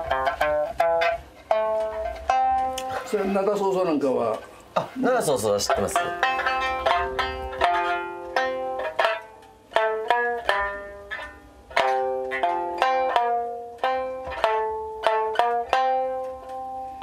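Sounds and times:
plucked lute melody: 0.0 - 17.0.

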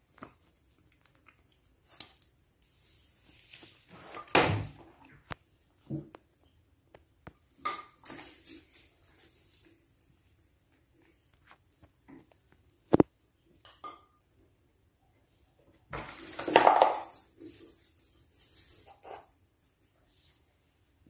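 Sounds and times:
rustling: 0.0 - 5.9.

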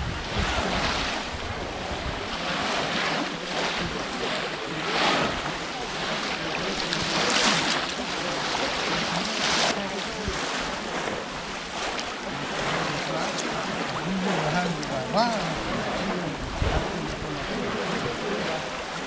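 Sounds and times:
water splashing and churning: 0.0 - 19.0.

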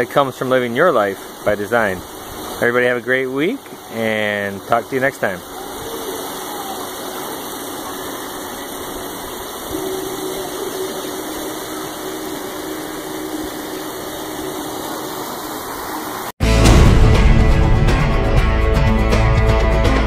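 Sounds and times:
faint steady hum: 0.0 - 16.3
river water rushing: 5.4 - 16.3.

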